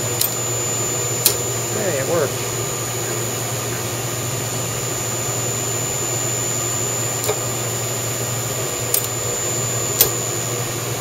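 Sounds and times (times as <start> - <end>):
milling machine hum with whine: 0.0 - 11.0
sharp machine clicks: 1.2 - 1.5, 8.9 - 9.2, 10.0 - 10.2.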